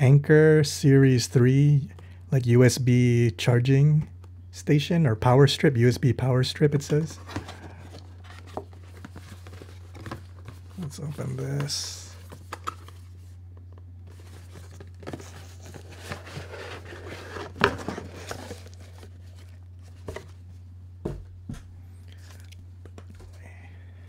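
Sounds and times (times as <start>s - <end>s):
steady low hum: 0.0s - 24.0s
cardboard packaging rustling: 6.9s - 20.6s.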